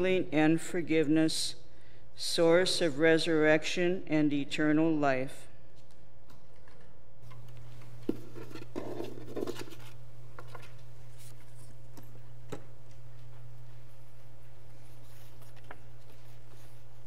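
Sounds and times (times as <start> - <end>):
steady low hum: 5.4 - 17.0.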